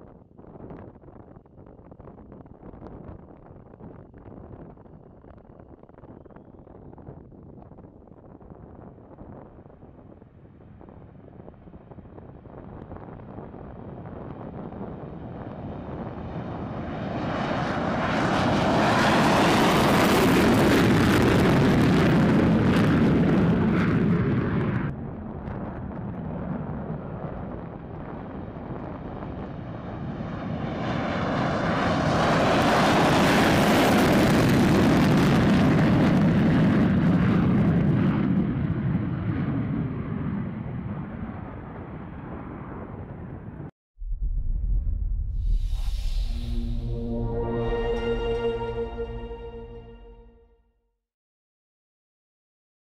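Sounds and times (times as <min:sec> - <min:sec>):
fighter jet taking off: 0:13.6 - 0:28.4, 0:29.3 - 0:38.6, 0:44.0 - 0:50.4.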